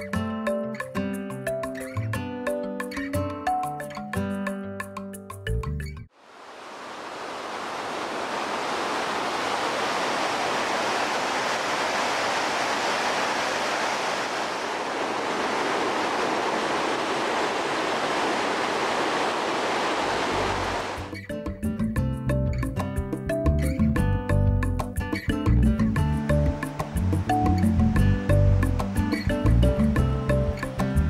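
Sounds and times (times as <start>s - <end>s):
music: 0.0s - 6.1s, 21.0s - 31.0s
waterfall roaring: 6.2s - 21.1s.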